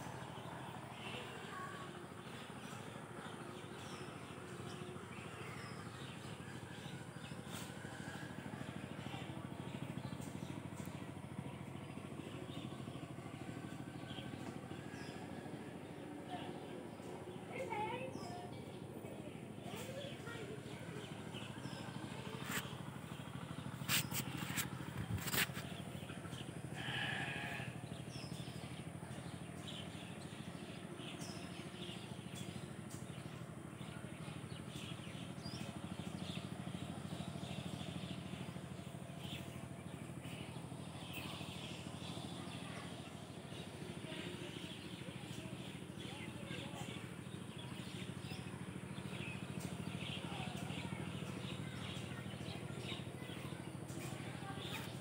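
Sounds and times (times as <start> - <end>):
small birds chirping: 0.0 - 55.0
pulsing mechanical hum: 1.8 - 44.4.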